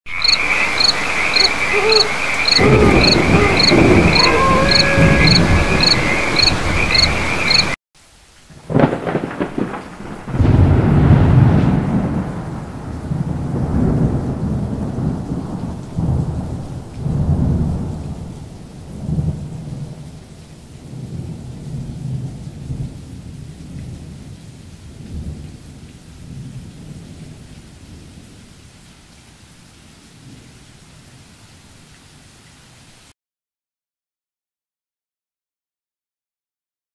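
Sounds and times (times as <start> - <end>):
rain: 0.1 - 33.2
rolling thunder: 2.4 - 7.8, 8.5 - 20.1.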